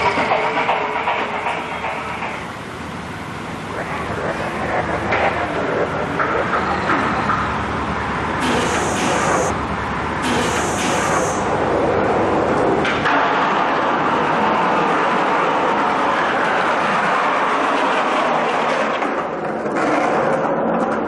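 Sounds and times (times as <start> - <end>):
skateboard wheels rolling on concrete: 12.0 - 21.0.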